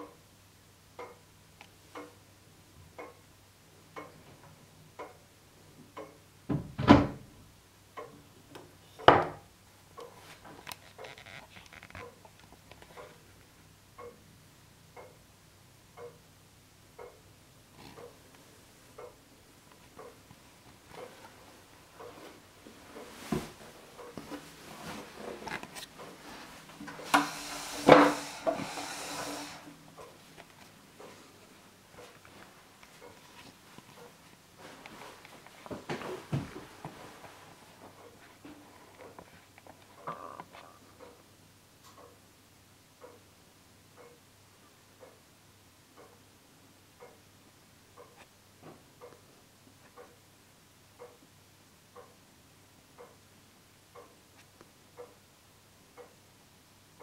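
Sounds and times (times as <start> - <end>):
clock ticking: 0.0 - 0.3, 0.9 - 3.3, 3.9 - 6.4, 7.8 - 8.3, 9.9 - 11.3, 11.9 - 22.3, 24.0 - 24.3, 26.9 - 31.2, 31.8 - 35.5, 37.9 - 57.0
wooden knocks and rubbing: 26.8 - 29.5
hiss: 27.0 - 29.7.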